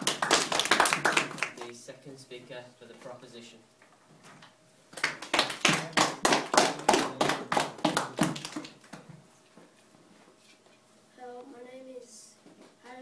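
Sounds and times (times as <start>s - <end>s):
people clapping: 0.0s - 1.8s, 4.9s - 9.0s.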